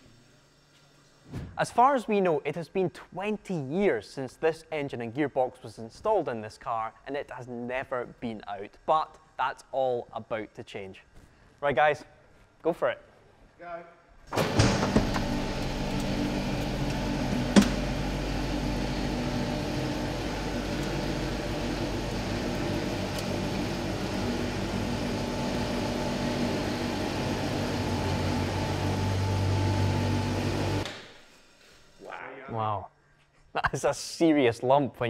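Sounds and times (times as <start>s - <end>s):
vehicle lift electric motor: 14.3s - 31.5s.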